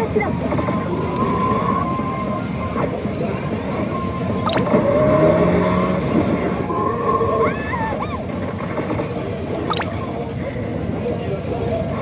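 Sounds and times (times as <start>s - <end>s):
electronic slot machine tones: 4.5s - 5.0s, 9.7s - 10.1s
slot machine start sound: 4.5s - 5.0s, 9.7s - 10.1s.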